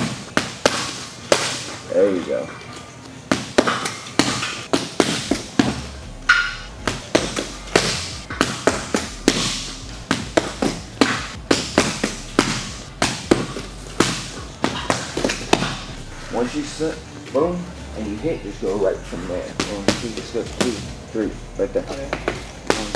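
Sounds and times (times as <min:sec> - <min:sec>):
gloved punches smacking: 0:00.0 - 0:01.7, 0:03.3 - 0:15.9, 0:19.6 - 0:21.0, 0:22.1 - 0:22.9.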